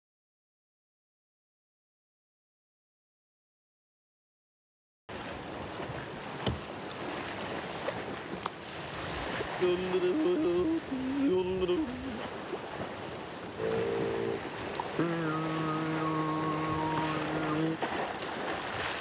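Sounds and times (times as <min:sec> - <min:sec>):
sea surf breaking on rocks: 0:05.1 - 0:19.0
wind: 0:05.1 - 0:19.0.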